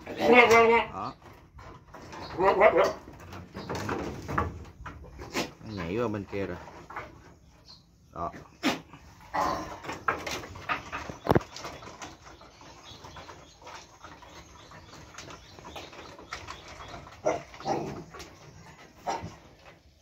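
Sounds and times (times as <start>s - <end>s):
goat bleating: 0.0s - 1.0s
hooves clattering on wooden slats: 0.0s - 20.0s.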